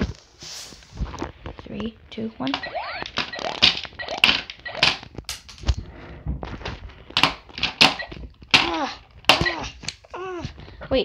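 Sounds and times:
toy gun shooting bursts: 2.6 - 5.1, 7.2 - 8.7.

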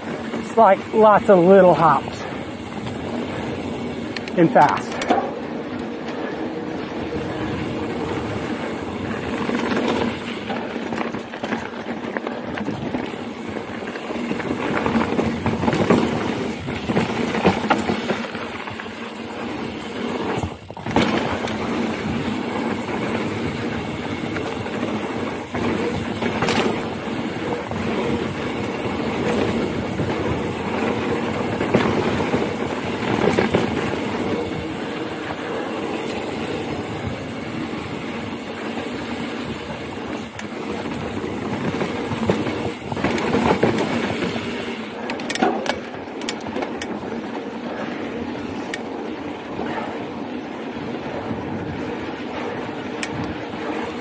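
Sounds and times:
bike knocking over bumps: 14.0 - 19.0, 20.2 - 34.3.

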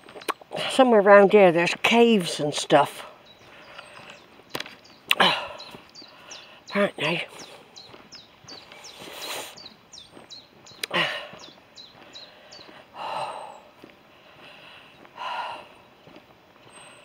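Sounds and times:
small bird singing: 0.0 - 17.0
person breathing heavily: 5.2 - 6.7, 10.8 - 15.9.

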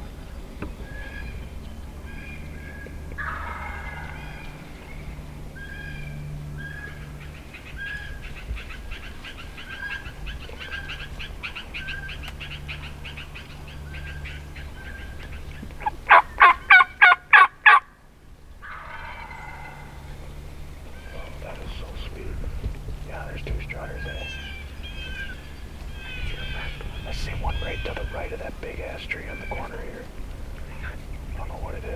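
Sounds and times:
turkey yelps: 2.1 - 4.6, 5.6 - 7.0, 7.7 - 17.9, 18.6 - 20.1, 24.0 - 28.4, 29.2 - 29.9
turkeys gobbling: 2.1 - 4.9, 5.6 - 17.9, 18.6 - 22.3, 23.4 - 31.9.

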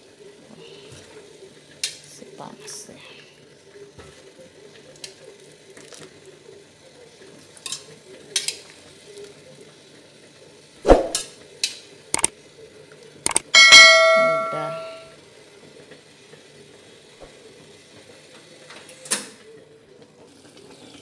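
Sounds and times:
metal tongs knocking on wok: 13.5 - 15.1
ringing metal clang: 13.5 - 15.1.

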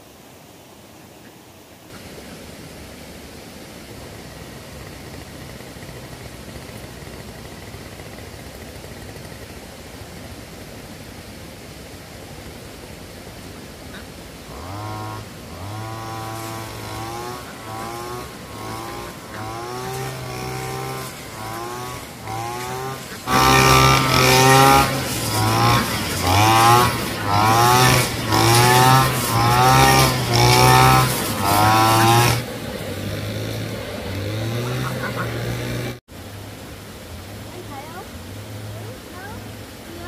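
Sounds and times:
lawn mower engine revving: 3.6 - 10.4, 13.9 - 36.6.

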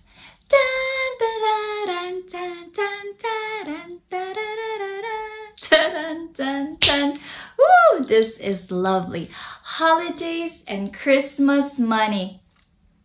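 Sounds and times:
woman singing unaccompanied: 0.5 - 12.3.

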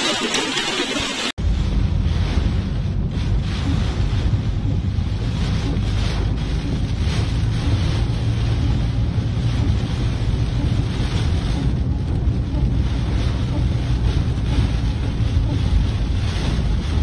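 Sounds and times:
tyres through standing water: 0.0 - 1.4
heavy rain on a car: 0.0 - 17.0.

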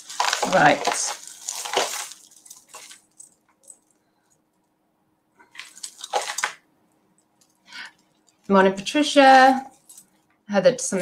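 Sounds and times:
jewellery clinking and jangling: 0.0 - 4.4, 9.4 - 10.2.

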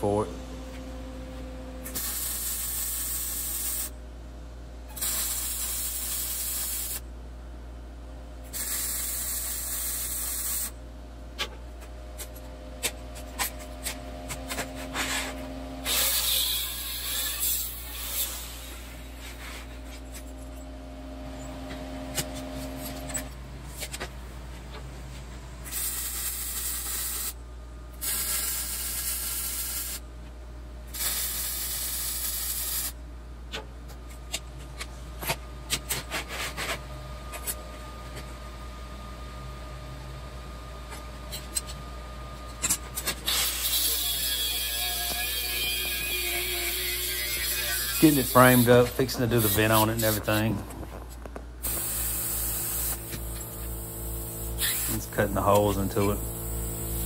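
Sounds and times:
angle grinder on steel: 15.8 - 18.5, 43.3 - 50.5
welder crackling: 44.9 - 57.0.

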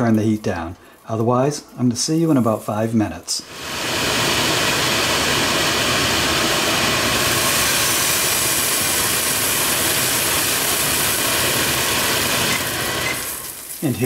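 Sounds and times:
peppers sizzling in oil: 0.0 - 14.0
range hood fan running: 3.4 - 14.0.

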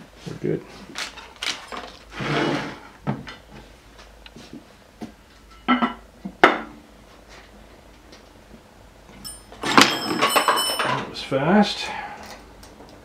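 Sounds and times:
rustling scrape: 0.7 - 3.0
sharp metal clanks: 9.2 - 11.1.

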